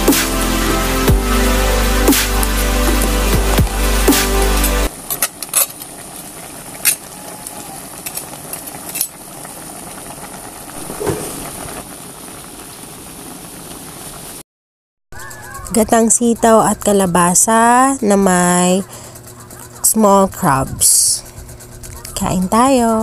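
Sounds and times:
electronic music: 0.0s - 4.9s
pot simmering with a hiss: 4.9s - 14.4s, 15.2s - 23.0s.

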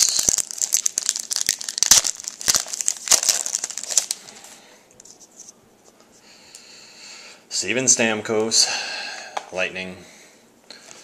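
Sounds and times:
foil wrapper tearing and crinkling: 0.0s - 4.4s.

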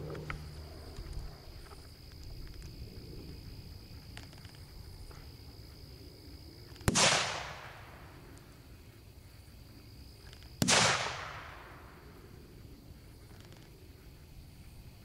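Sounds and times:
firework crack and hissing burst: 6.8s - 8.0s, 10.6s - 12.0s.

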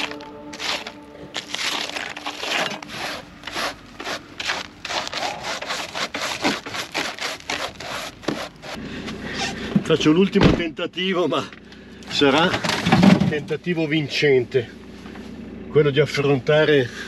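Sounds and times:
footsteps crunching through snow: 0.0s - 8.8s.

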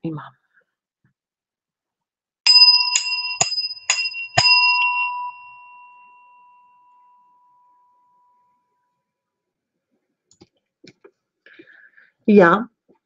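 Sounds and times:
bell ringing: 2.5s - 8.6s.

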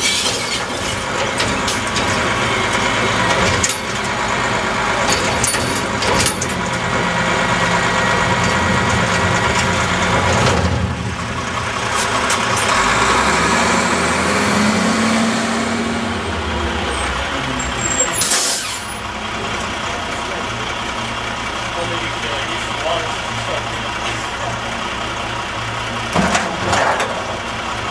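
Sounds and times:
hydraulics working: 0.0s - 27.5s
diesel truck engine running: 0.0s - 27.9s
metal clanks: 5.0s - 6.8s
air brake hiss: 18.2s - 18.8s.

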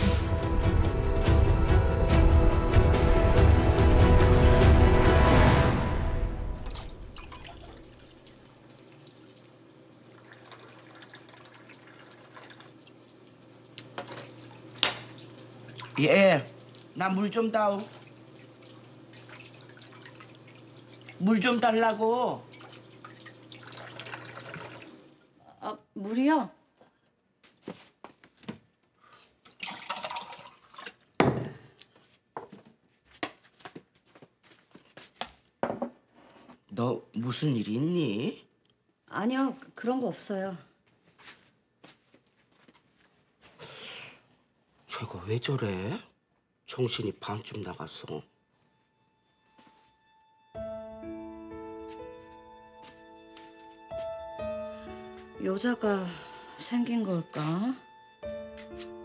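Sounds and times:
faucet water trickling: 6.6s - 25.4s, 29.2s - 31.2s
cup knocking: 35.6s - 36.0s.

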